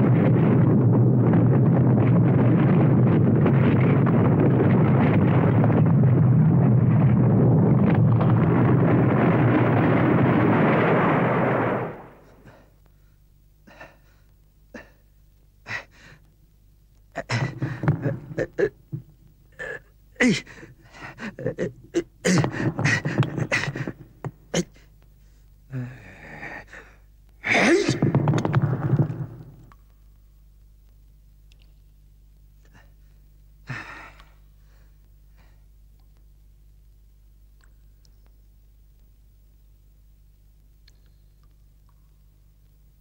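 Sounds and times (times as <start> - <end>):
rock collapsing rumble: 0.0 - 12.6, 17.2 - 24.6, 27.4 - 29.8
old man gasping and grunting: 25.7 - 27.9, 33.7 - 34.3.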